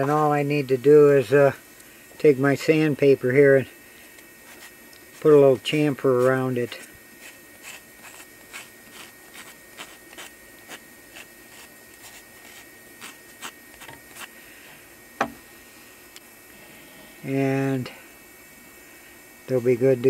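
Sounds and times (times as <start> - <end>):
sandpaper rubbing wood: 4.4 - 14.3.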